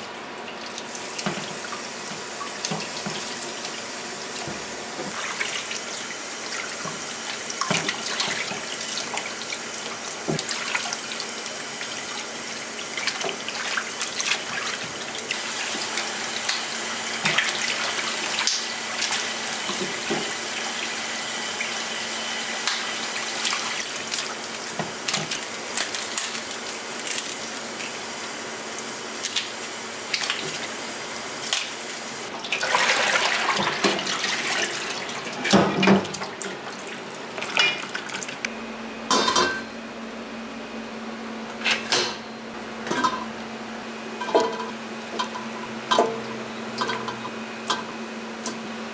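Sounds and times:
tap water running into steel bowl: 0.7s - 21.9s.

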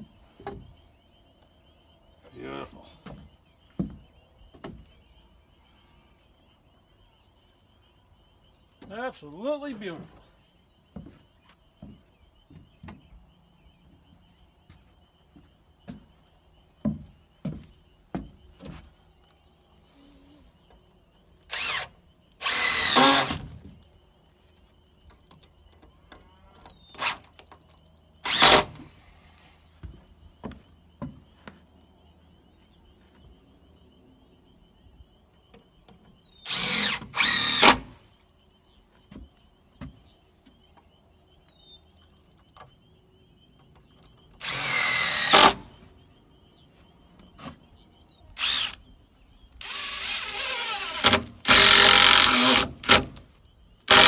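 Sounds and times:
power drill bursts: 21.5s - 23.5s, 26.9s - 27.3s, 28.2s - 28.8s, 36.4s - 38.0s, 44.4s - 45.7s, 48.4s - 48.8s, 49.6s - 53.2s.

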